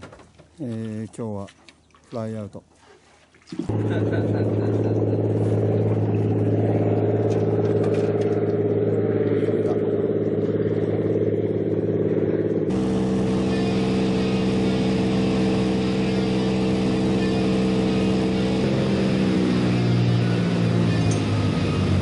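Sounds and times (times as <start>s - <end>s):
plane engine and propeller: 3.7s - 22.0s.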